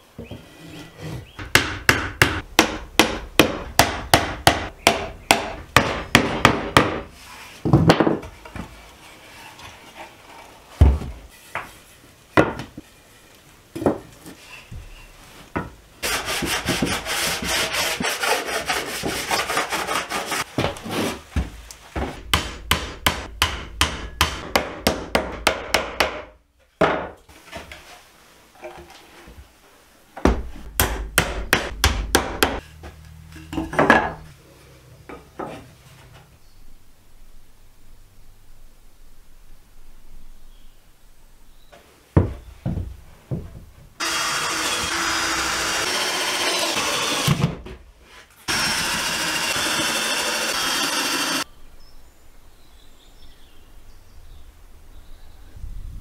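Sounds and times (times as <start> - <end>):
rubbing on wood: 16.0 - 21.2.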